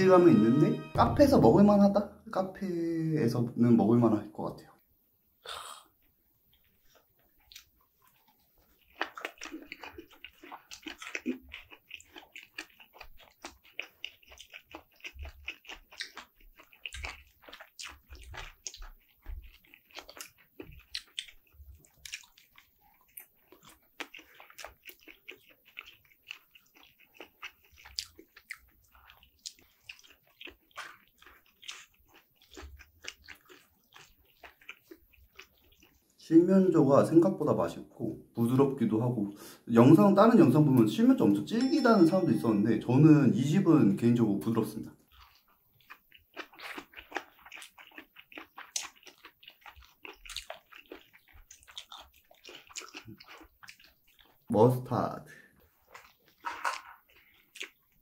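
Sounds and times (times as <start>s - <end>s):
person chewing: 5.5s - 36.2s, 44.4s - 54.5s, 55.4s - 58.0s.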